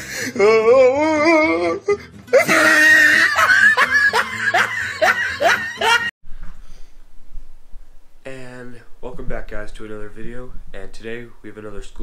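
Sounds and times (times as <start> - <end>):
person laughing hard: 2.3 - 6.1.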